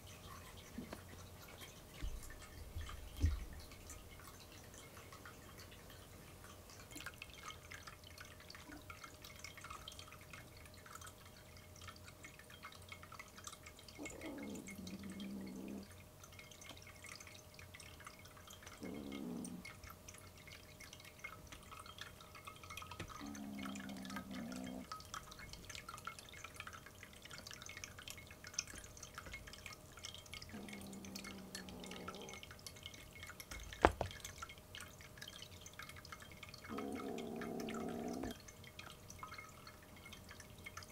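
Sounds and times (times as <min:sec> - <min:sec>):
water trickling in fountain: 0:00.0 - 0:40.9
kitten growling: 0:14.0 - 0:15.9, 0:18.8 - 0:19.7, 0:23.2 - 0:24.9, 0:30.5 - 0:32.4, 0:36.7 - 0:38.4.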